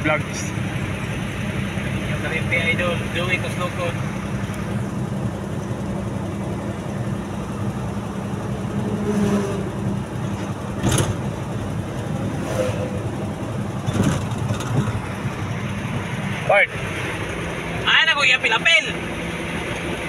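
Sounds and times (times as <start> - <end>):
road noise: 0.0 - 20.0
vehicle engine drone: 0.0 - 20.0.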